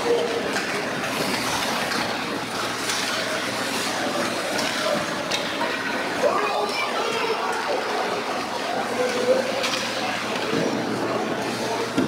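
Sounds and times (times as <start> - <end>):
hockey sticks and puck clacking: 0.0 - 5.8, 9.0 - 10.9
skates scraping on ice: 0.5 - 5.5.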